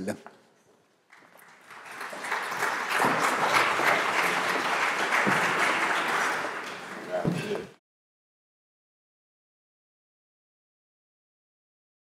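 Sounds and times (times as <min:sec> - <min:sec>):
audience applauding: 0:01.1 - 0:07.8.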